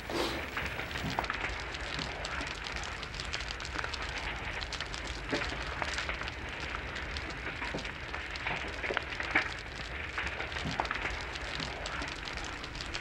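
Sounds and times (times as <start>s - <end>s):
hiss: 0.0s - 1.2s
small crackles and ticks: 0.2s - 13.0s.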